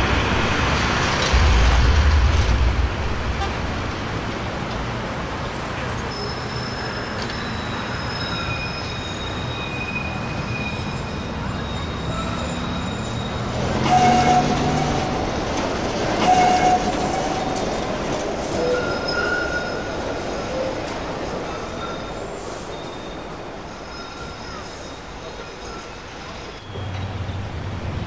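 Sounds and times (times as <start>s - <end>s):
train running on rails: 0.0s - 28.0s
high wheel squeals: 5.6s - 27.5s.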